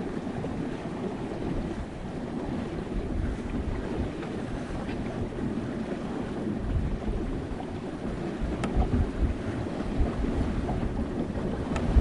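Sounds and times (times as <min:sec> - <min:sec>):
water washing against hull: 0:00.0 - 0:12.0
wind rumbling: 0:00.0 - 0:12.0
faint sharp ticks: 0:08.6 - 0:08.8.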